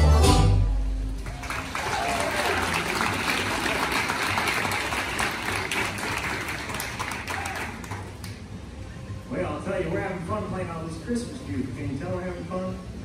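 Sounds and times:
audience applause: 1.2 - 8.4.

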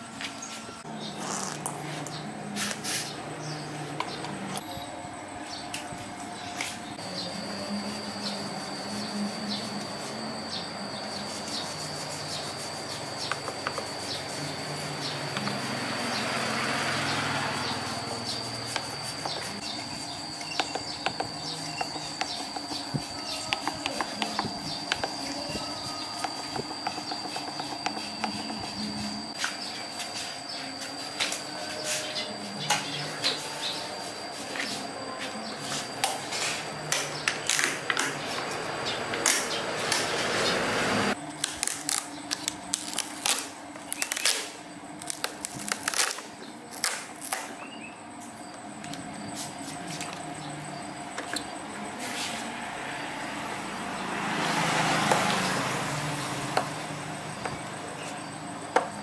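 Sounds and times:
high-pitched whine: 0.0 - 59.0.

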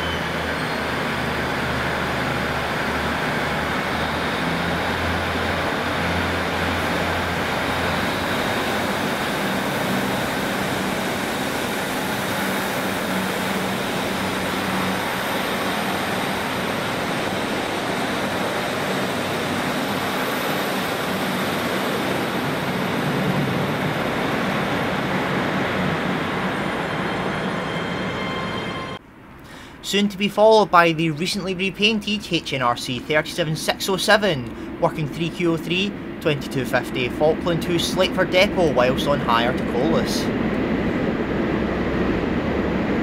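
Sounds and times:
wheel and rail noise: 0.0 - 29.5
diesel train engines running: 0.0 - 43.0.

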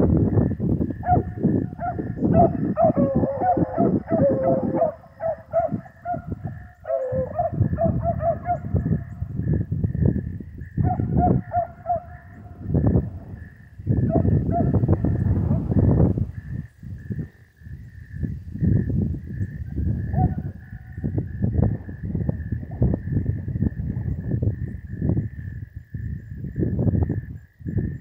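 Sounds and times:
dogs baying: 1.0 - 9.1, 10.8 - 12.6, 14.0 - 14.8.

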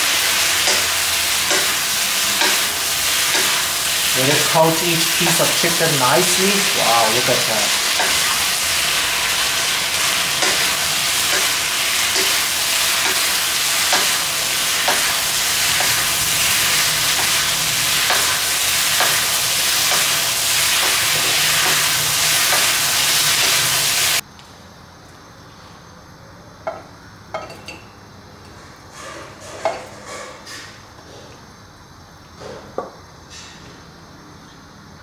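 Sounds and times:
food sizzling in a wok: 0.0 - 24.2.

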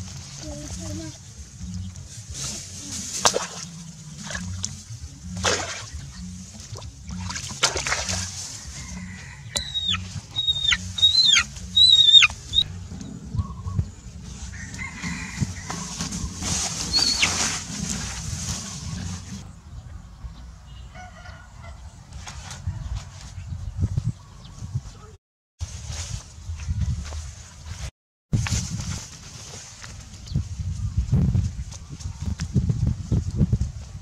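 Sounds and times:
rustling: 0.0 - 12.7, 14.2 - 19.4, 25.6 - 30.8
chicken peeping: 9.2 - 12.7, 14.9 - 17.4.

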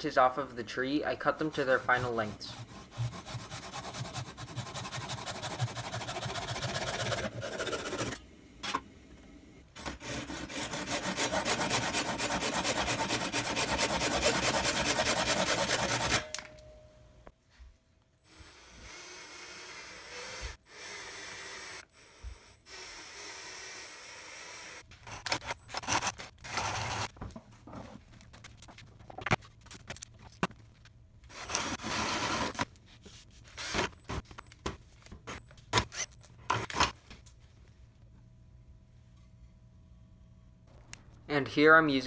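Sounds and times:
power drill boring into wood: 18.3 - 24.8.

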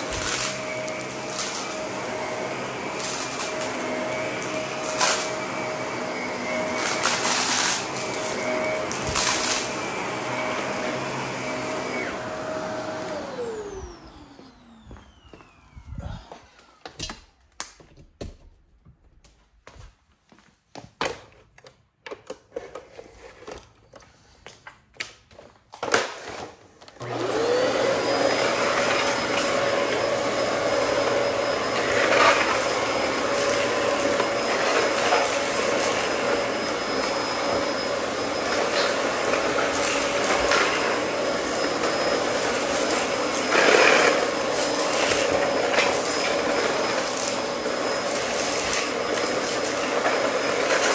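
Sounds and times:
upright vacuum motor whining: 0.0 - 17.2, 26.8 - 50.9.

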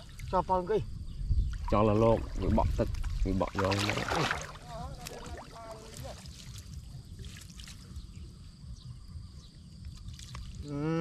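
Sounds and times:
water splashing and trickling: 0.0 - 11.0.

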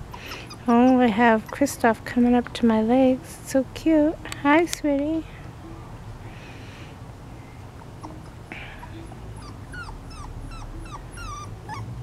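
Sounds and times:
puppy whimpering: 0.0 - 1.8, 7.8 - 12.0.

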